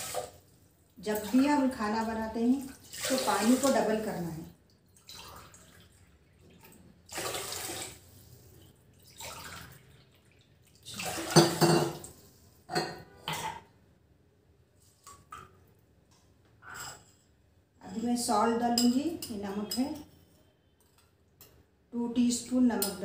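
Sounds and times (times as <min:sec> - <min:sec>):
water pouring into a metal pot: 0:00.0 - 0:00.5, 0:02.7 - 0:04.1, 0:05.0 - 0:08.1, 0:08.9 - 0:11.8.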